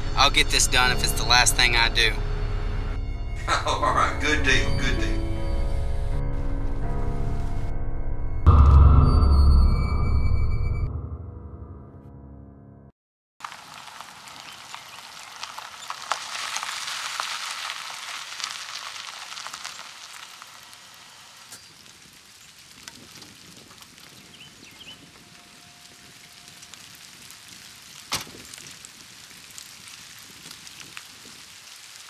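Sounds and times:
car tyres crackling over gravel: 13.4s - 32.0s.

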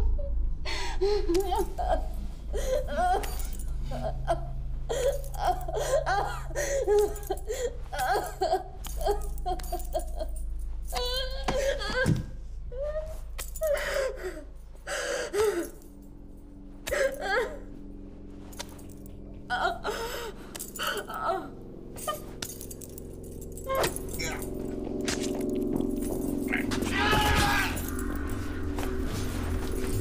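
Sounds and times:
steady low drone: 0.0s - 30.0s
human gasps moans and cries: 0.7s - 10.4s, 11.4s - 15.9s, 16.9s - 17.8s, 18.6s - 24.6s.

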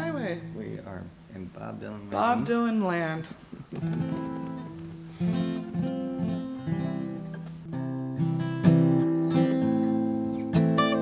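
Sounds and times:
acoustic guitar strumming: 3.7s - 11.0s.

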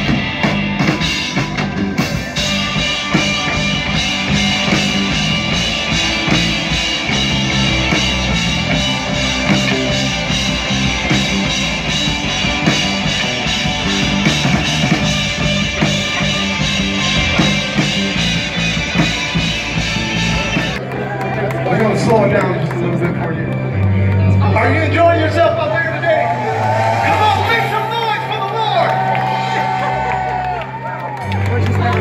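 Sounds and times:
drum kit beat: 0.0s - 20.8s
electric guitar: 0.0s - 25.0s
live band playing: 0.0s - 32.0s.

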